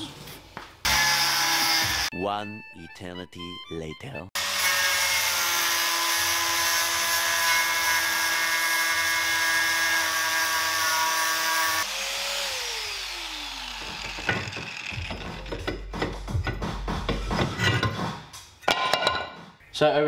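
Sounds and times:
angle grinder cutting steel: 0:00.9 - 0:02.1, 0:04.4 - 0:16.6.

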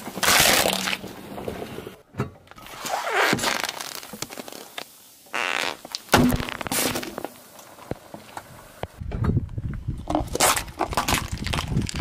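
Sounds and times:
can crunching: 0:05.8 - 0:07.7, 0:10.0 - 0:12.0.

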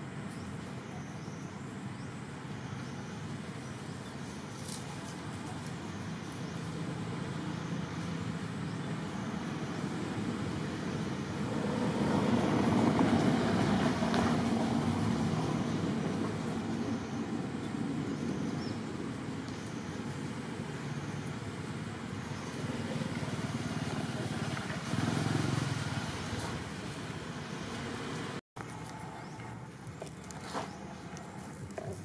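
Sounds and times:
vehicle passing: 0:20.3 - 0:29.8.

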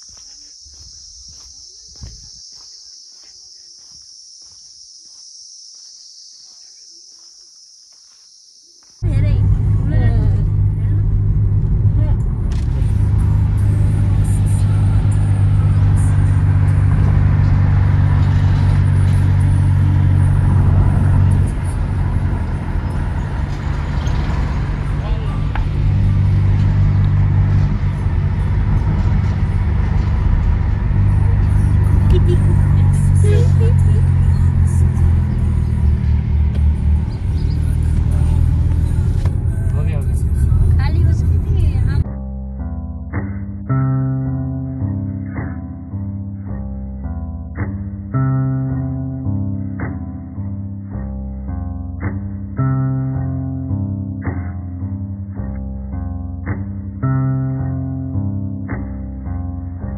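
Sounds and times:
insects chirring: 0:00.0 - 0:09.0
car engine and road drone: 0:08.8 - 0:59.9.

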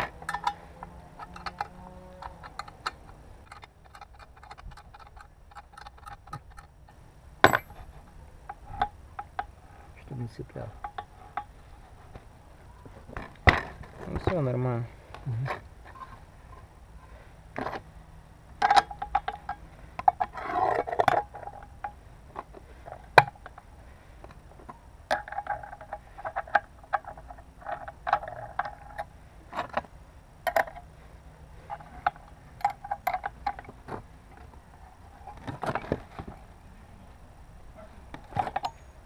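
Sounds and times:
metallic clicks and clinks: 0:00.0 - 0:00.6, 0:07.4 - 0:07.8.

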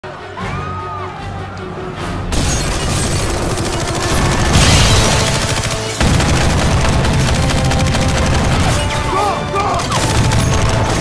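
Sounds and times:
automatic rifle gunfire: 0:03.0 - 0:08.9, 0:09.7 - 0:11.0.

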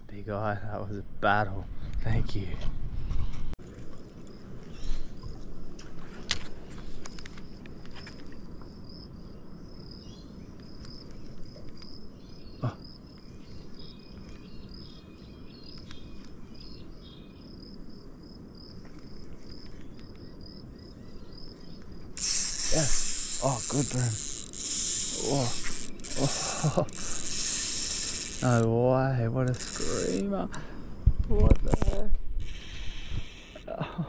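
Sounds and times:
lower insect chirping: 0:06.7 - 0:30.6, 0:31.5 - 0:34.0
insects trilling: 0:06.8 - 0:30.8, 0:31.5 - 0:34.0.

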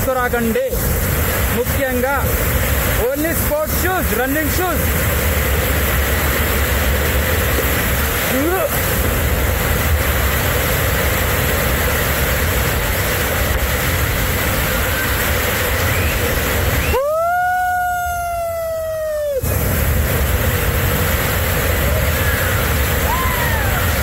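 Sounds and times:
waterfall roaring: 0:00.0 - 0:24.0
whistle-like tone: 0:15.7 - 0:17.1.

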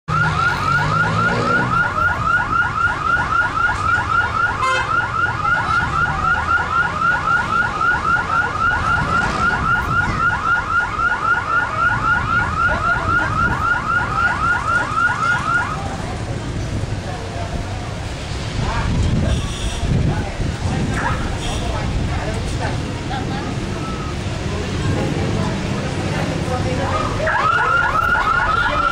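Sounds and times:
car alarm siren warbling: 0:00.1 - 0:15.8, 0:27.0 - 0:28.9.

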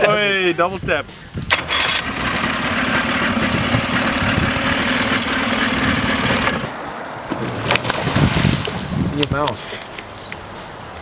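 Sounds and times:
outboard motor running: 0:01.5 - 0:06.7.

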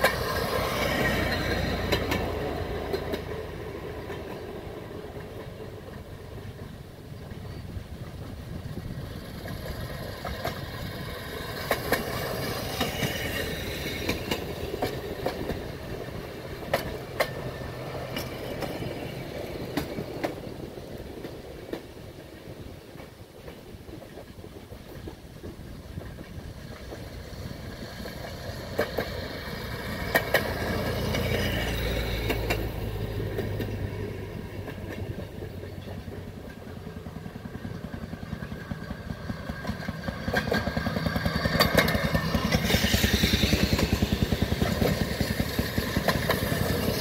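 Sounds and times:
wheels clicking over rail joints: 0:00.0 - 0:47.0
small engines puttering: 0:37.1 - 0:47.0.

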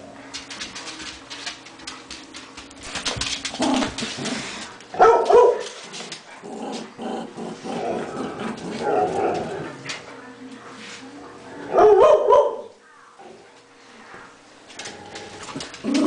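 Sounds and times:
dogs scuffling and rustling: 0:00.2 - 0:06.9, 0:14.6 - 0:16.0
small dogs barking: 0:04.9 - 0:05.8, 0:11.7 - 0:12.8.

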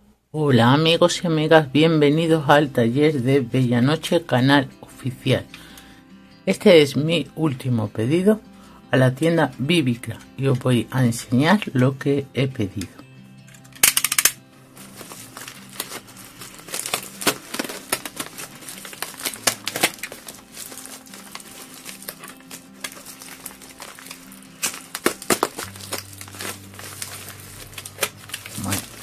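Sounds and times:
bubble-wrap mailer crinkling: 0:14.6 - 0:29.0
utility knife cutting plastic: 0:16.7 - 0:29.0.

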